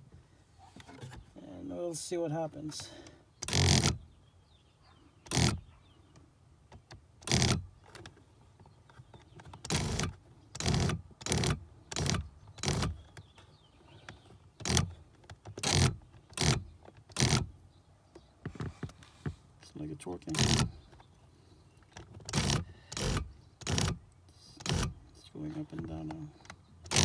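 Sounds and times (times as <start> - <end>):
seat motor running: 9.6 - 13.1, 22.3 - 24.0.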